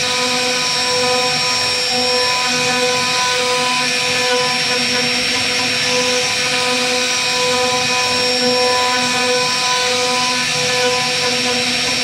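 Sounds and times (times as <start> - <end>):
bit cutting wood: 0.0 - 12.0
router spindle whining: 0.0 - 12.0.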